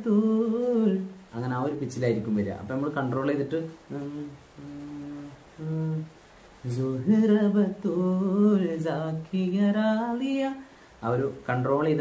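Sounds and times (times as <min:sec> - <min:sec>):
man singing unaccompanied: 0:00.0 - 0:12.0
man humming: 0:03.9 - 0:09.2.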